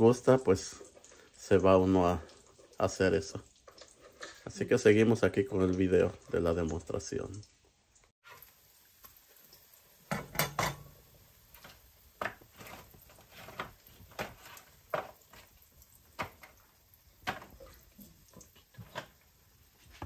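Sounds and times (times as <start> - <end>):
utensil scraping against cookware: 11.6 - 15.5.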